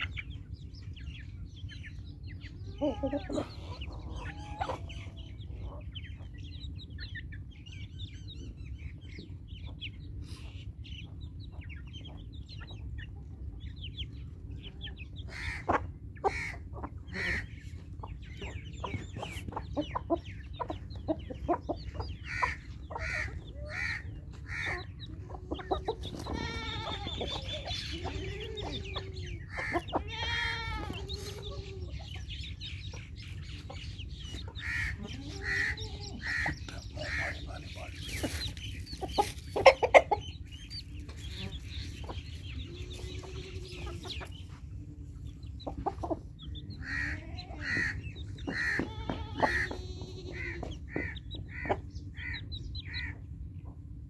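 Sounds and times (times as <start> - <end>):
chickens clucking: 0.0 - 54.0
loud chicken calls: 2.4 - 6.3, 14.6 - 20.0, 20.7 - 32.3, 33.0 - 40.5, 41.1 - 44.6, 45.7 - 53.2.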